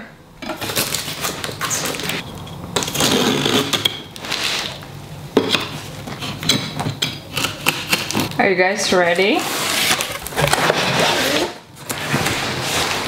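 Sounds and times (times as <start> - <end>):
knife cutting plastic wrap and tape: 0.5 - 2.2, 2.8 - 4.8, 7.3 - 8.4.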